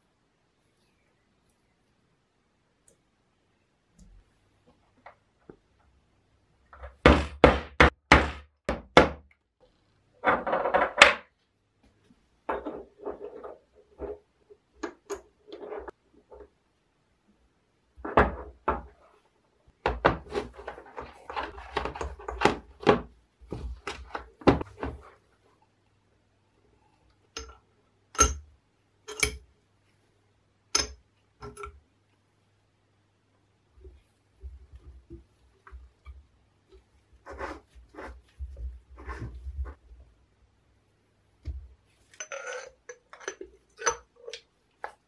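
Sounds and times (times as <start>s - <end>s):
metal parts rattling: 42.2s - 44.4s.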